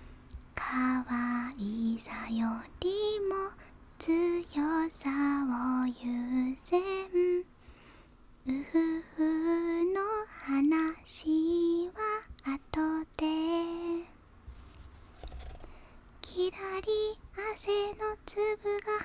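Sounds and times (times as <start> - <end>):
woman singing softly: 0.4 - 7.5, 8.4 - 14.2, 16.2 - 19.0.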